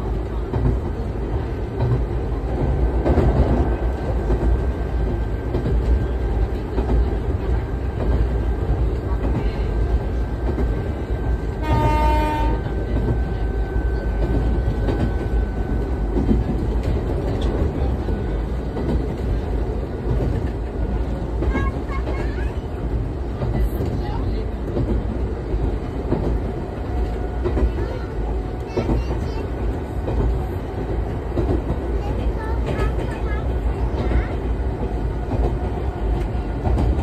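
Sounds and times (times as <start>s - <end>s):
train wheels rumbling: 0.0s - 37.0s
short train horn blast: 11.6s - 12.8s.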